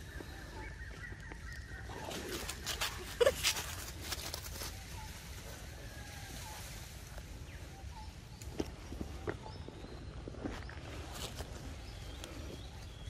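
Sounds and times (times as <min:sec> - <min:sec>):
dry leaves rustling and crunching: 0:02.0 - 0:07.4.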